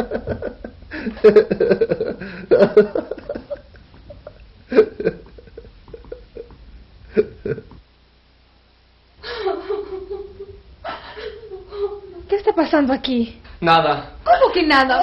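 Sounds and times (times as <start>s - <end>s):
man laughing: 0.0s - 7.7s.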